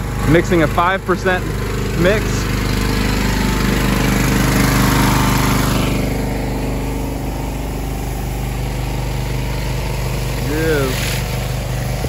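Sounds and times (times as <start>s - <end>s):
pressure washer engine running: 0.0s - 12.0s
spray hiss: 10.2s - 12.0s.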